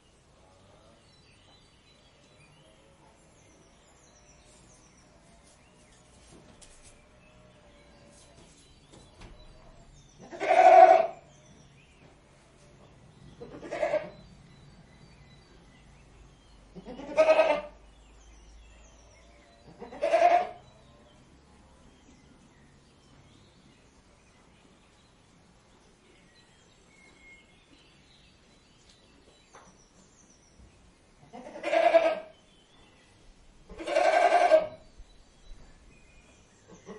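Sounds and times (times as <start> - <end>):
goat bleating: 10.2 - 11.2, 13.4 - 14.2, 16.8 - 17.8, 19.7 - 20.6, 31.3 - 32.3, 33.7 - 34.8.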